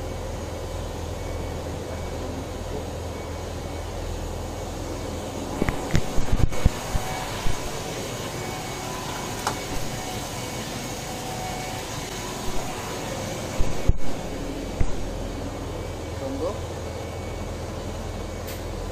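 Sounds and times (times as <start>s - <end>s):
low machinery hum: 0.0s - 18.9s.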